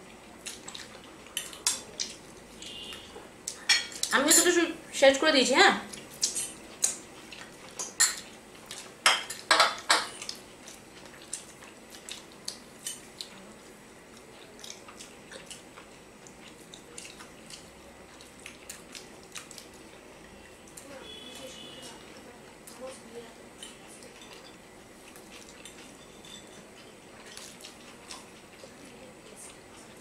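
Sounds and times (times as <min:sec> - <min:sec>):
cutlery clinking on plates: 0:09.1 - 0:10.2, 0:25.9 - 0:26.7.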